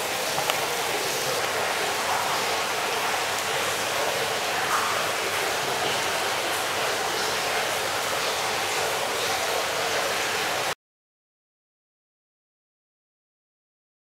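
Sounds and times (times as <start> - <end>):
running water rushing: 0.0 - 10.8.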